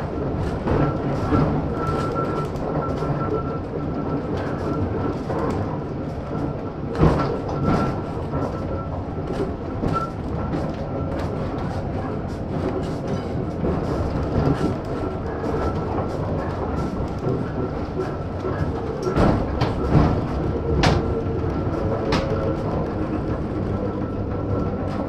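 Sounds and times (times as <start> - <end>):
tram wheels rumbling on rails: 0.0 - 25.0.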